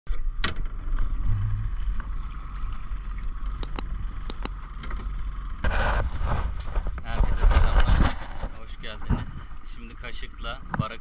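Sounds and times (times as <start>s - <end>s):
sharp clicks: 3.6s - 4.5s.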